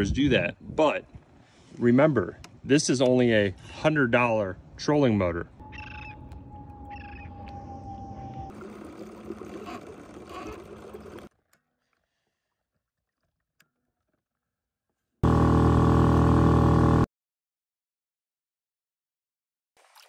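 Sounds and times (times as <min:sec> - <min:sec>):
wind: 0:00.0 - 0:11.4
boat motor running: 0:05.6 - 0:11.3, 0:15.2 - 0:17.0
water noise: 0:05.6 - 0:11.4.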